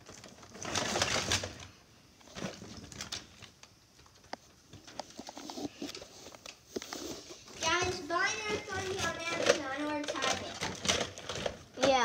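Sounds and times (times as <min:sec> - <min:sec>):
plastic toy handling clicks: 0:08.5 - 0:12.0.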